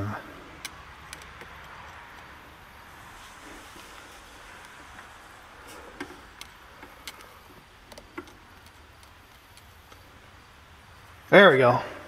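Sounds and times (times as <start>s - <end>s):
faint steady hum: 0.0s - 12.0s
connector clicks and ticks: 0.6s - 2.3s, 5.9s - 10.1s.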